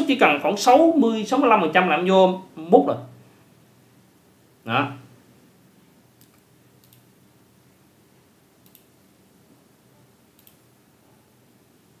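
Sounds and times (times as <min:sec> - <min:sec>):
computer mouse clicks: 0:06.2 - 0:07.1, 0:08.6 - 0:08.9, 0:10.3 - 0:10.6.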